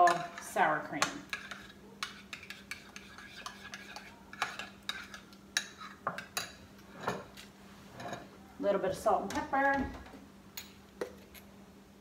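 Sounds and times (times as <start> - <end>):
spoon stirring sour cream: 0.0 - 7.6.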